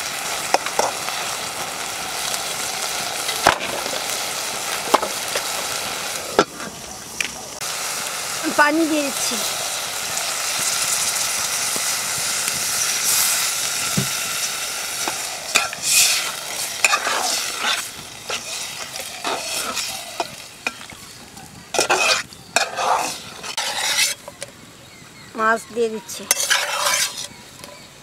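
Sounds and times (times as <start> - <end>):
spatula scraping metal pot: 15.0 - 20.9, 21.7 - 24.4, 26.1 - 27.9.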